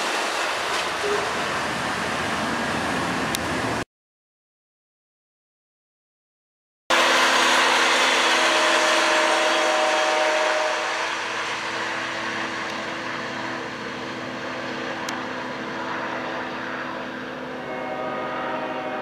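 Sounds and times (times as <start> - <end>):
diesel locomotive running: 0.0 - 3.8, 6.9 - 19.0
train wheel and rail noise: 0.0 - 3.8, 6.9 - 19.0.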